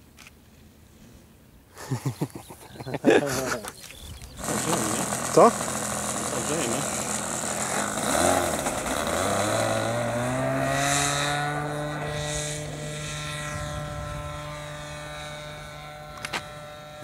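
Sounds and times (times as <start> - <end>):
model plane engine buzzing: 3.6 - 17.0.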